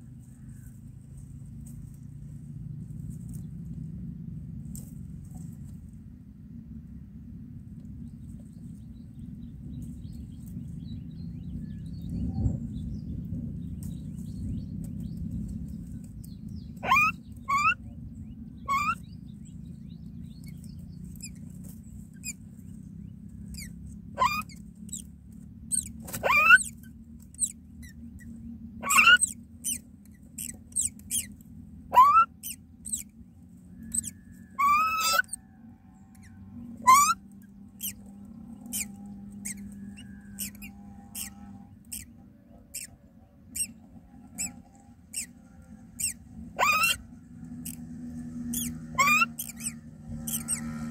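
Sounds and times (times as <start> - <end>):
low steady hum: 0.0 - 50.9
nestlings begging squeaks: 15.3 - 17.8, 18.6 - 19.4, 20.3 - 33.2, 33.8 - 35.4, 36.1 - 50.9.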